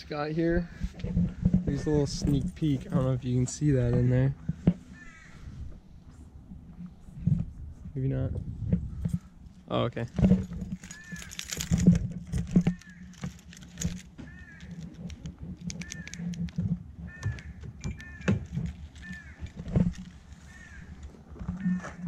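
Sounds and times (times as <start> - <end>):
bird calling: 3.8 - 5.8, 10.7 - 11.8, 12.4 - 22.0
keys rattling: 10.0 - 16.6, 17.4 - 21.0
footsteps on dry grass: 17.1 - 22.0.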